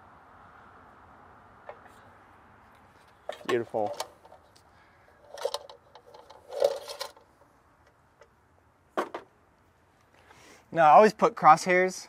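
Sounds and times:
metal box scraping on brick: 0:05.2 - 0:07.2.

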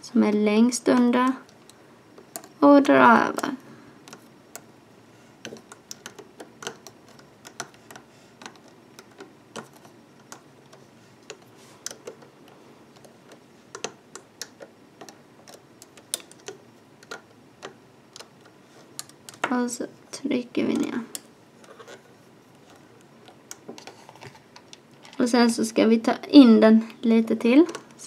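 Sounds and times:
hook tapping plastic pegs: 0:05.4 - 0:19.6.

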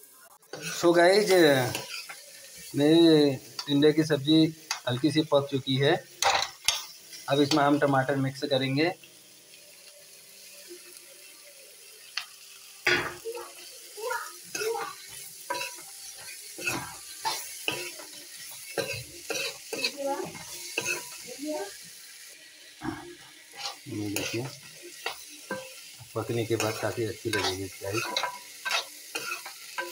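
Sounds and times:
vegetables sizzling: 0:00.0 - 0:29.9
spoon stirring and scraping wok: 0:00.4 - 0:02.7, 0:06.2 - 0:08.0, 0:14.4 - 0:21.3, 0:22.2 - 0:29.9.

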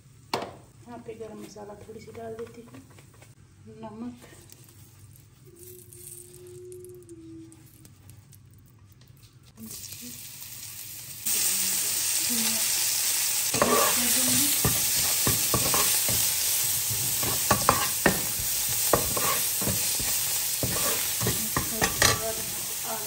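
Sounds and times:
spices sizzling in hot oil: 0:09.6 - 0:23.0
metal spatula scraping a pan: 0:13.5 - 0:22.6.

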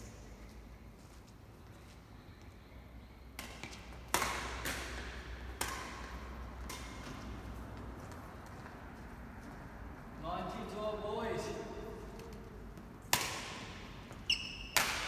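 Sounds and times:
rackets hitting shuttlecock: 0:03.4 - 0:08.8, 0:12.1 - 0:15.0.

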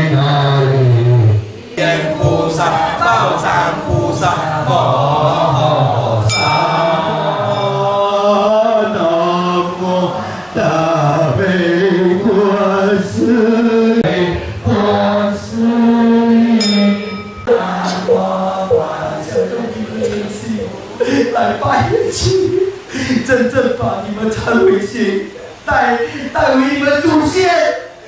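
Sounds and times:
group chanting a prayer: 0:00.0 - 0:22.3.

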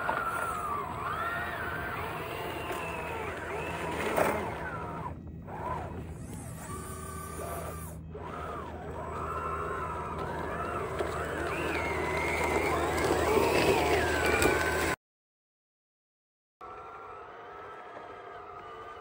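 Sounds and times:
electric motors whining: 0:00.0 - 0:15.0.

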